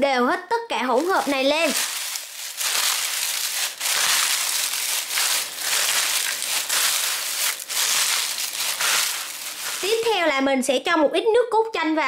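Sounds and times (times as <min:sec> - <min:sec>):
crinkly crunchy rustling of salad: 0:00.8 - 0:10.3.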